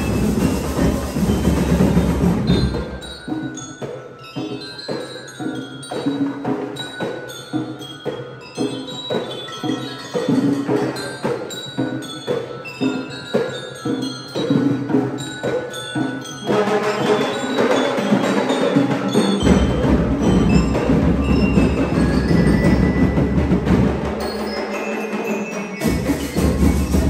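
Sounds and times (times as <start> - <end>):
marching band playing: 0.0 - 3.9, 10.1 - 27.0
deep bass drum beats: 25.8 - 27.0.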